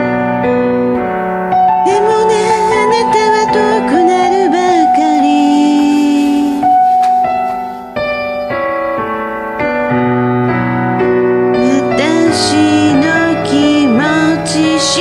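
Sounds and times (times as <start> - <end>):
piano chords: 0.0 - 15.0
person singing: 1.8 - 7.5, 11.5 - 15.0.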